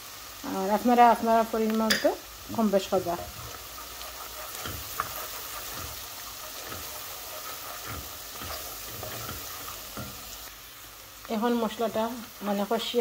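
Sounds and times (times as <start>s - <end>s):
onion sizzling in hot oil: 0.0s - 13.0s
wooden spatula scraping a pan: 2.5s - 10.5s.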